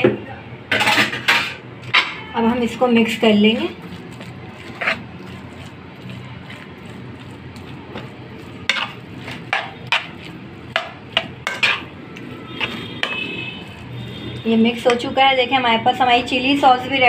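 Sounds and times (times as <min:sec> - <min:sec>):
spoon stirring in a frying pan: 0:03.1 - 0:15.2
spoon knocking against pan: 0:10.7 - 0:11.8.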